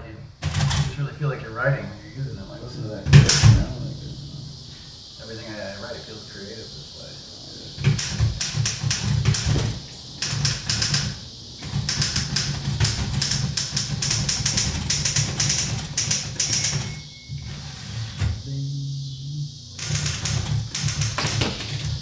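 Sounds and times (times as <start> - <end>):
typewriter keystrokes clacking: 7.8 - 17.0, 19.8 - 22.0.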